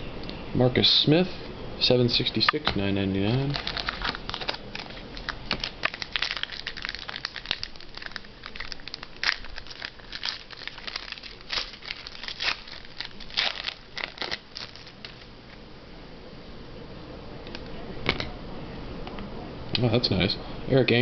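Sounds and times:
card packaging crinkling: 0:03.2 - 0:15.3
cards being handled: 0:03.3 - 0:15.3.

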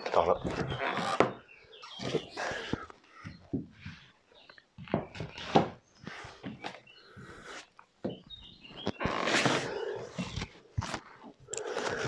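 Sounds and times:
high bird chirps: 0:00.5 - 0:03.5, 0:06.0 - 0:10.5.

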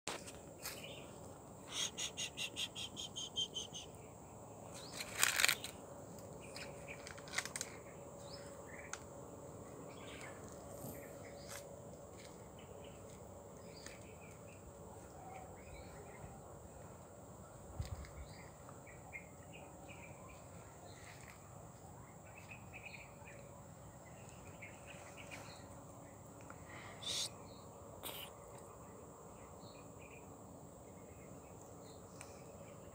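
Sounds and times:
high insect drone: 0:00.1 - 0:32.9
bird chirps: 0:00.7 - 0:05.7, 0:26.8 - 0:28.4.

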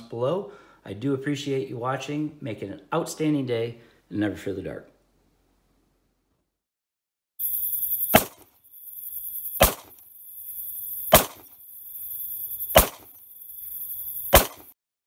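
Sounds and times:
sharp cracks: 0:07.4 - 0:11.8, 0:12.5 - 0:13.3, 0:14.1 - 0:14.8
thin high tone: 0:07.4 - 0:14.4
high hiss: 0:07.4 - 0:14.7.

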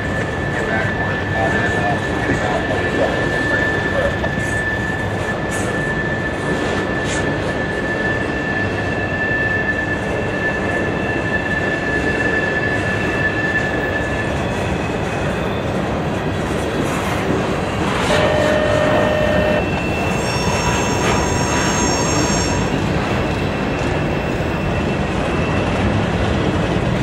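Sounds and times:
wheels rumbling on rail: 0:00.0 - 0:27.0
high wheel squeal: 0:18.1 - 0:25.7
higher wheel squeal: 0:18.1 - 0:25.7.

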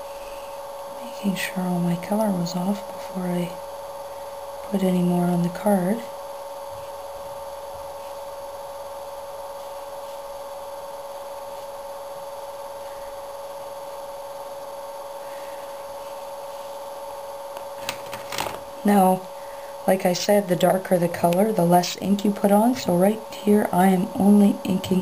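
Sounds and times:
electrical hum: 0:00.0 - 0:25.0.

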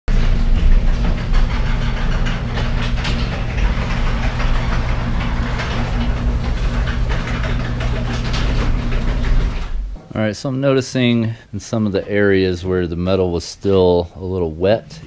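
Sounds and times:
machine humming with rattling clatter: 0:00.1 - 0:10.1.

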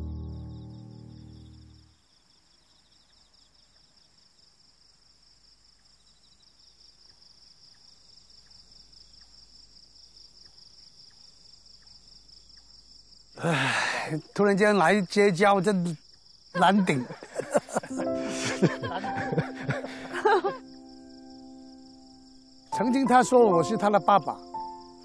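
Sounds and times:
crickets chirping: 0:00.0 - 0:25.0
person speaking: 0:13.4 - 0:16.0, 0:16.6 - 0:20.6, 0:22.7 - 0:24.4
acoustic guitar: 0:17.8 - 0:21.0.

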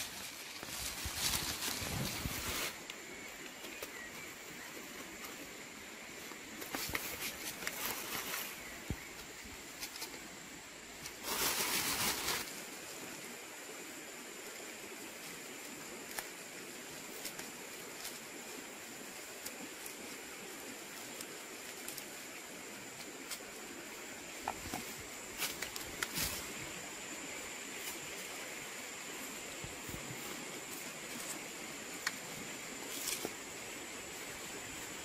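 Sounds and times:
plastic bag rustling and crinkling: 0:00.0 - 0:02.8, 0:11.0 - 0:12.7
outdoor background: 0:00.0 - 0:35.0.

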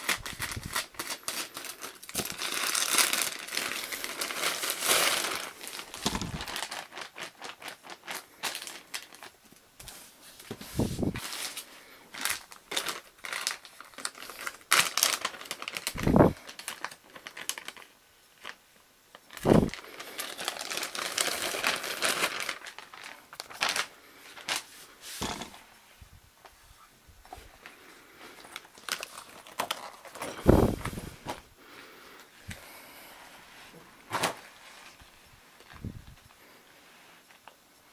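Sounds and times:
plastic bag crinkling: 0:00.0 - 0:09.6, 0:10.8 - 0:25.4, 0:27.3 - 0:31.4.

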